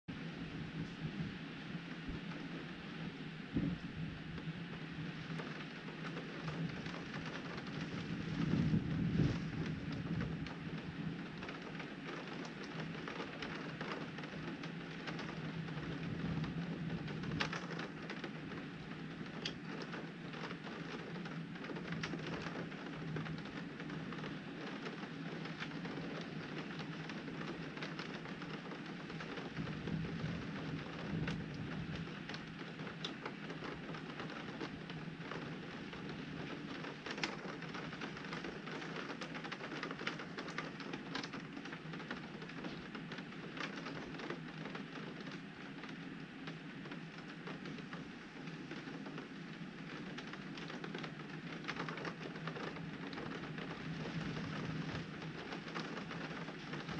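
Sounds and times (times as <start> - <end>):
thunder rumble: 0.1 - 45.7, 53.0 - 56.9
rain striking a window: 0.1 - 56.9.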